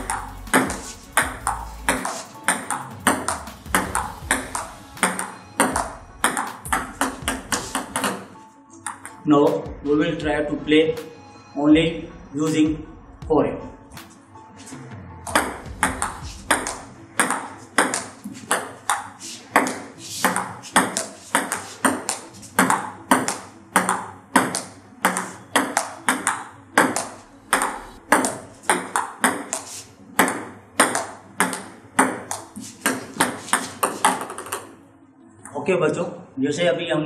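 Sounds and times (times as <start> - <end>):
ball clicking off bats: 0.0 - 8.2, 15.3 - 34.7
ball bouncing on table: 0.0 - 9.6, 15.3 - 34.7.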